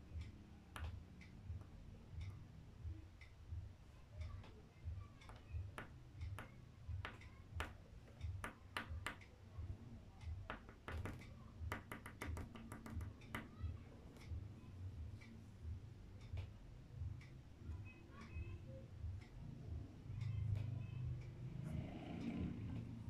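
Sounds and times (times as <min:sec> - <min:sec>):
chalk tapping on paper: 0:05.1 - 0:09.3, 0:10.3 - 0:13.7.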